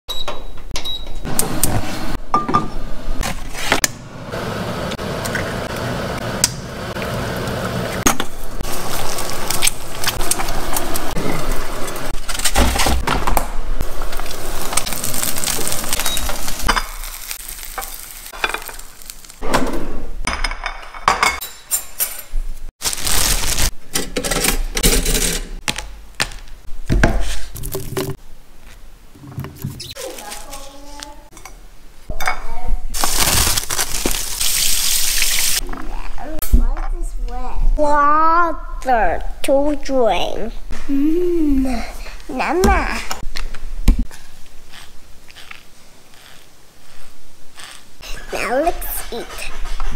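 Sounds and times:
eggs sizzling in a pan: 5.5 - 12.2, 13.8 - 19.4, 33.0 - 35.6
cutlery clinking and scraping: 20.3 - 22.4.

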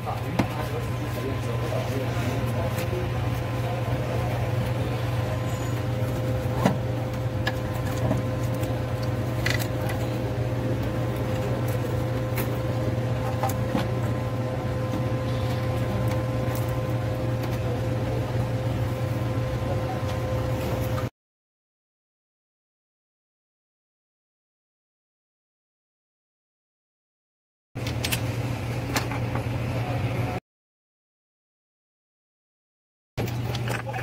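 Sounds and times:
low mechanical hum: 0.0 - 21.1, 27.8 - 30.4, 33.2 - 34.0.

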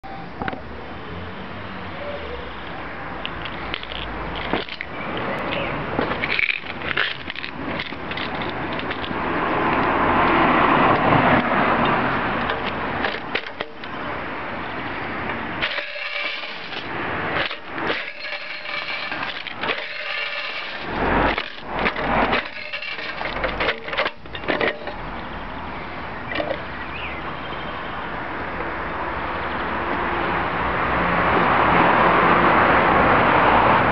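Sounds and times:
metal clicking and rattling: 3.2 - 4.9, 5.5 - 9.2, 11.8 - 14.0, 15.6 - 25.1.

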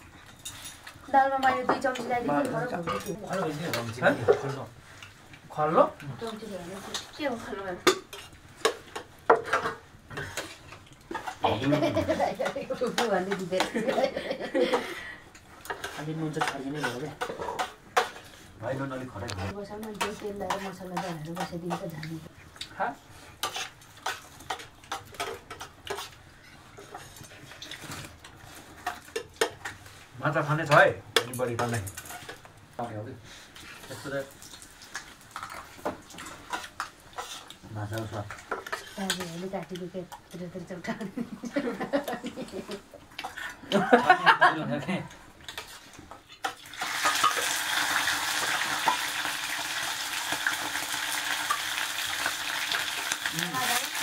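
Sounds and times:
cutlery clinking on dishes: 2.8 - 4.6
fish frying in hot oil: 34.0 - 35.6, 46.4 - 54.0.

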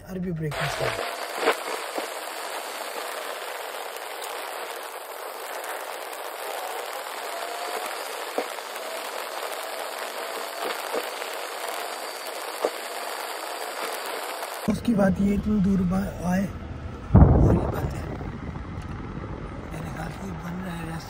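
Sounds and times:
faint whine: 0.0 - 21.0
road and air noise in car: 14.7 - 21.0.

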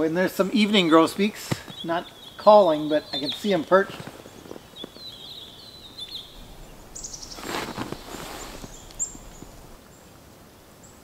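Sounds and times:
rustling: 3.2 - 10.0
bird whistled calls: 4.4 - 9.8.

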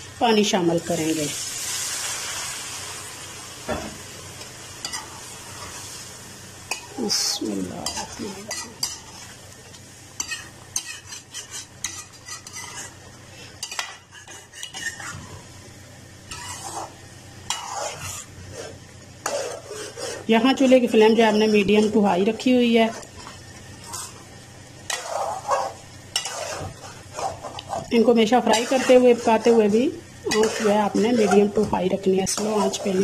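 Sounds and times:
steady sizzle: 0.0 - 33.0
metal spoon scraping a pan: 4.8 - 5.8, 7.8 - 9.2, 10.2 - 13.0, 13.6 - 15.4, 16.3 - 21.0, 23.8 - 24.2, 24.8 - 33.0.

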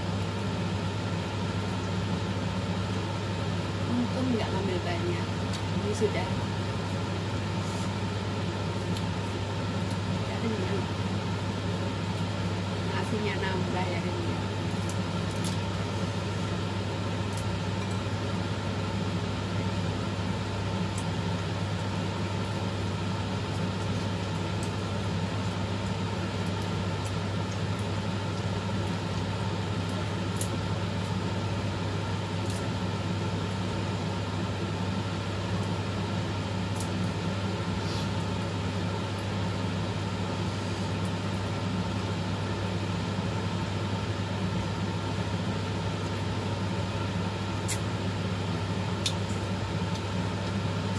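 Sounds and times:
low mechanical hum: 0.0 - 50.9.

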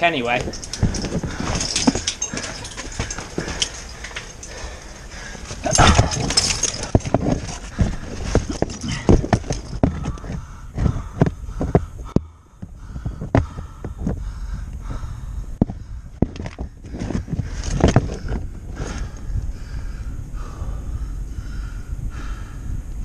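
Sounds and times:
boots crunching over rock rubble: 5.5 - 10.2.

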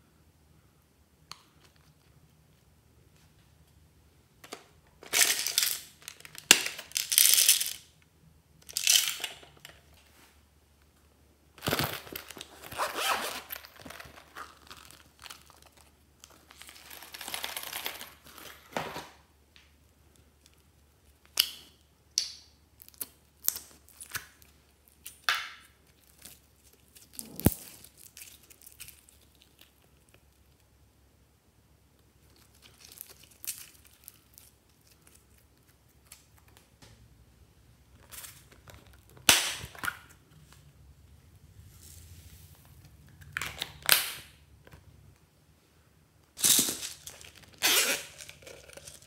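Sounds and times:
plastic containers and beads rattling: 5.0 - 8.0, 8.6 - 10.0, 11.6 - 18.8, 46.4 - 49.0.

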